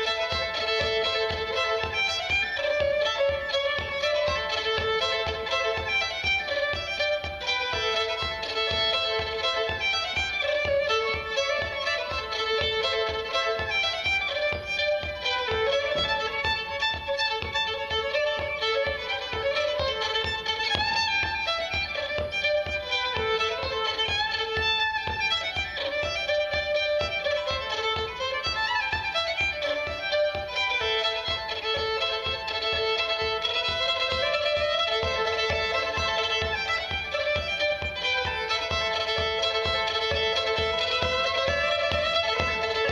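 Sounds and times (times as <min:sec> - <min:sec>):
solo fiddle dance tune: 0:00.0 - 0:42.9.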